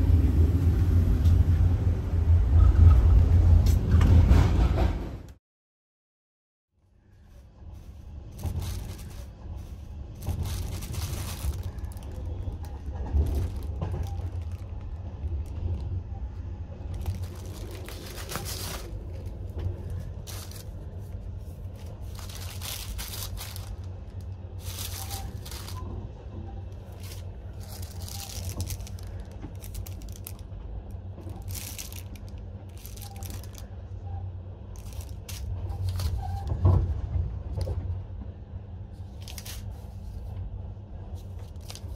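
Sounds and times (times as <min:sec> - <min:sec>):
train rumbling: 0:00.0 - 0:05.4, 0:06.8 - 0:41.9
plastic packaging crinkling: 0:08.2 - 0:15.8, 0:16.8 - 0:25.8, 0:26.8 - 0:30.4, 0:31.2 - 0:33.7, 0:34.8 - 0:36.4, 0:39.0 - 0:40.3, 0:41.2 - 0:41.9.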